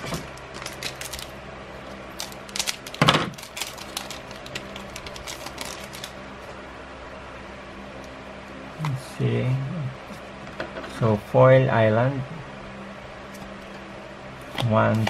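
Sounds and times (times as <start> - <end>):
foil wrapper crinkling: 0.0 - 6.2
cards being handled: 2.2 - 6.2.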